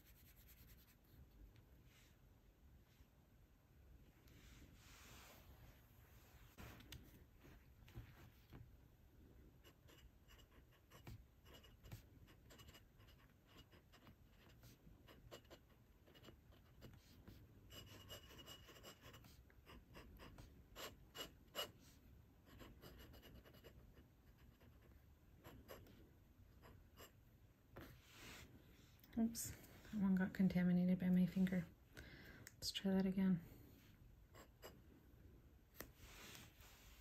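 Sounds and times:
pen scratching on paper: 9.6 - 26.0.

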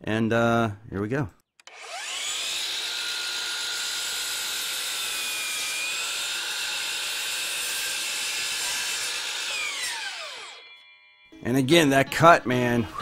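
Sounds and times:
miter saw cutting wood: 1.6 - 10.8
saw blade spinning down: 1.6 - 11.2.

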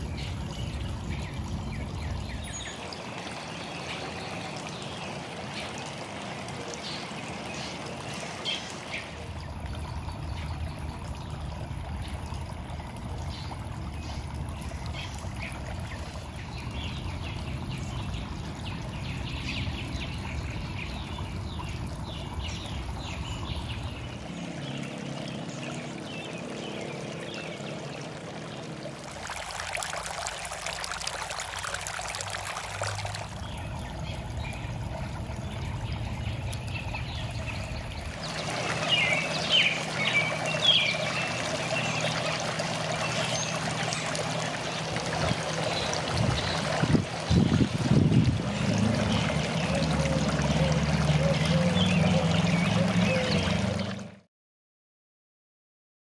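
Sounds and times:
water trickling: 0.0 - 54.3
small birds chirping: 31.7 - 53.6.

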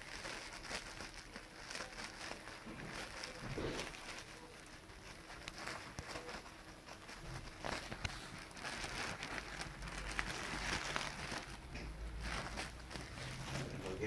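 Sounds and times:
plastic crinkling and rustling: 0.0 - 14.0
paws scratching and tapping: 0.2 - 13.8.

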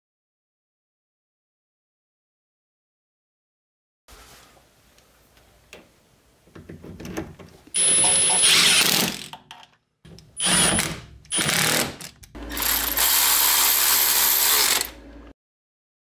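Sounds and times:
cordless power tool whining: 7.8 - 9.3, 10.4 - 15.0.

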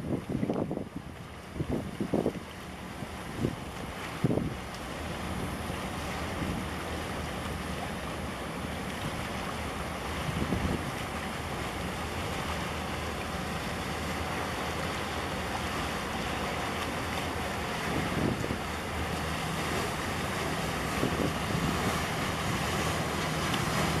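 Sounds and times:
wind buffeting microphone: 0.0 - 2.5, 3.1 - 4.6, 10.2 - 11.1, 17.3 - 24.0
boat engine humming: 0.0 - 24.0
water lapping and waves: 0.0 - 24.0.

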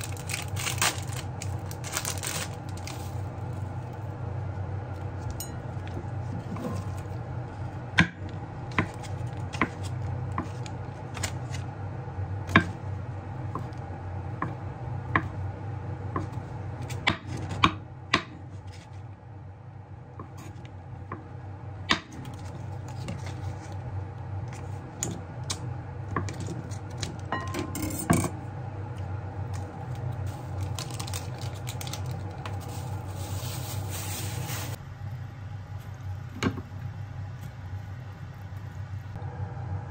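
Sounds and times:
plastic wrapping crinkling: 0.0 - 4.1, 29.5 - 34.8
steady low hum: 0.0 - 39.9.

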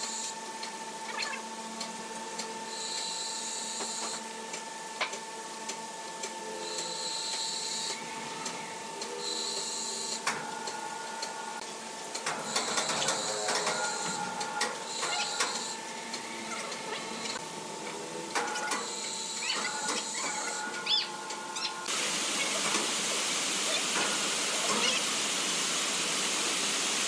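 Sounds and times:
sawmill machinery humming: 0.0 - 27.0
high-pitched motor whines: 2.6 - 4.2, 6.4 - 11.6, 12.4 - 22.6.

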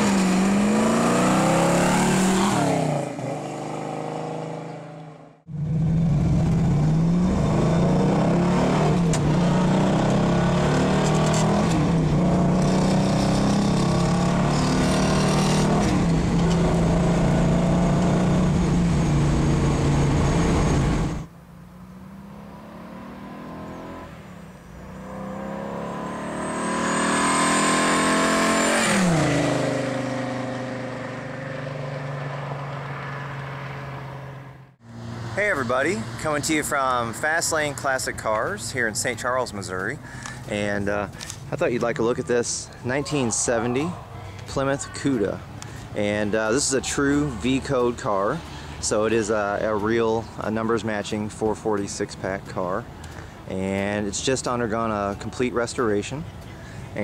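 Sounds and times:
loud vee-eight engine: 0.0 - 40.6.

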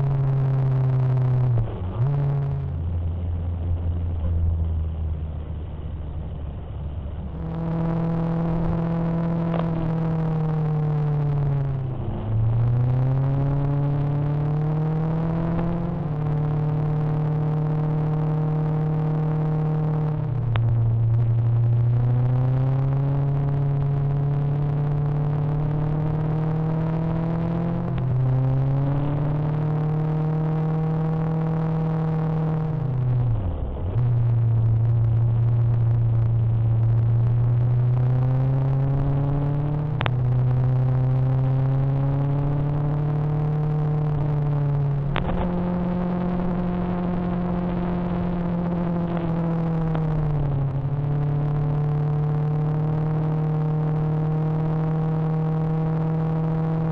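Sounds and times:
motorcycle engine running: 0.0 - 56.9.

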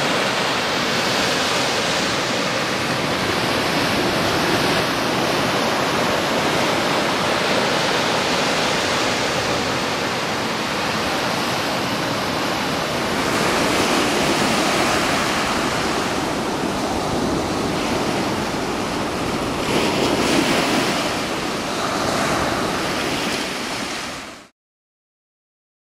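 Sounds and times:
waves washing up sand: 0.0 - 24.5.

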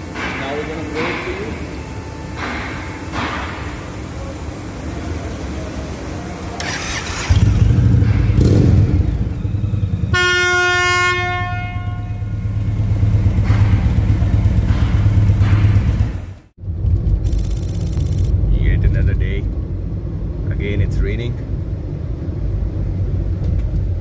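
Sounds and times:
motorcycle engine running: 6.6 - 10.2, 11.7 - 18.3
train horn blast: 10.0 - 13.1.

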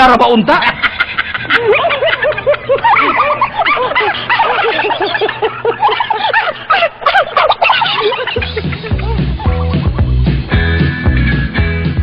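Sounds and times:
canned laughter: 0.5 - 10.0
music with bass line: 8.4 - 12.0.

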